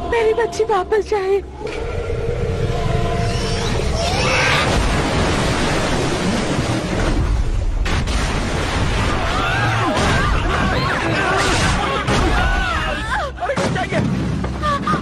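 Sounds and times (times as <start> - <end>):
churning water rush and rumble: 3.7 - 15.0
people screaming: 9.0 - 13.3.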